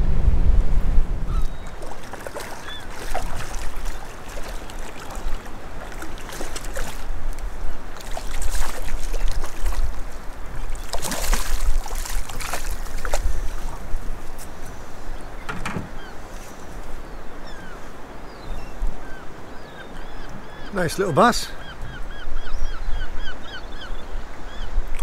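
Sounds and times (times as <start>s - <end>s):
water lapping and splashing: 1.3s - 22.2s
fish thrashing at surface: 1.7s - 7.0s, 10.9s - 13.2s.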